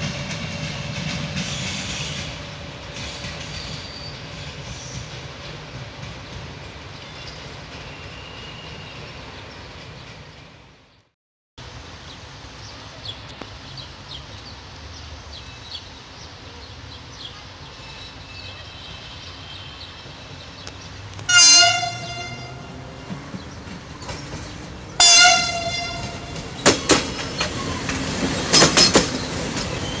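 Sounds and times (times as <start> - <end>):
train rumbling: 0.0 - 11.0, 11.6 - 30.0
train horn blast: 21.3 - 22.9, 25.0 - 26.5.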